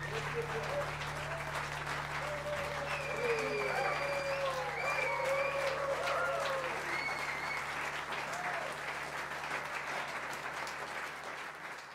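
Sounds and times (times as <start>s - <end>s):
audience applauding: 0.0s - 11.9s.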